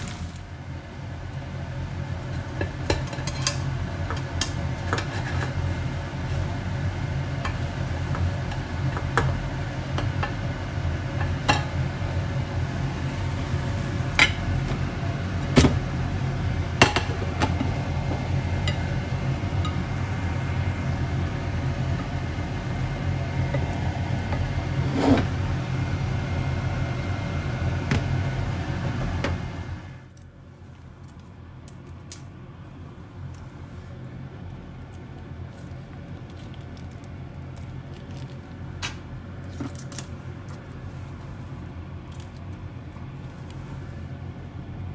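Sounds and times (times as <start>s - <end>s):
kitchen appliance hum: 0.0s - 44.9s
turner scraping frying pan: 4.4s - 5.8s, 24.7s - 25.4s.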